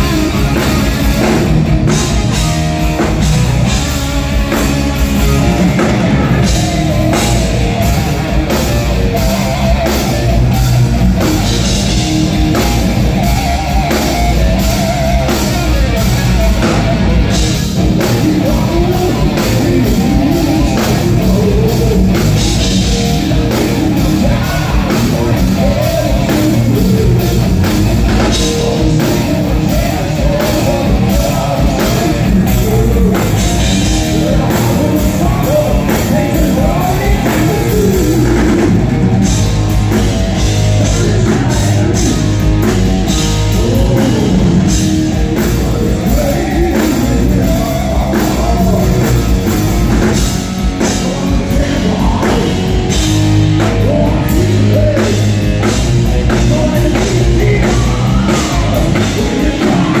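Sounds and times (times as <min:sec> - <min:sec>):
distorted electric guitars: 0:00.0 - 1:00.0
drum kit: 0:00.0 - 1:00.0
keyboards: 0:00.0 - 1:00.0
man singing: 0:00.0 - 1:00.0.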